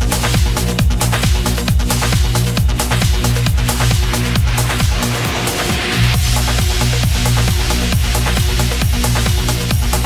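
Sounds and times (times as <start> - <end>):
electronic dance music: 0.0 - 10.0.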